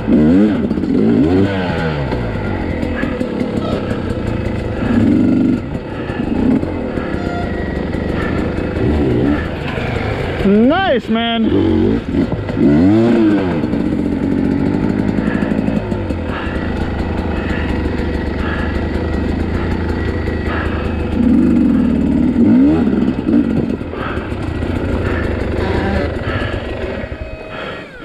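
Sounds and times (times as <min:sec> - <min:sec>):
dirt bike engine revving: 0:00.0 - 0:28.0.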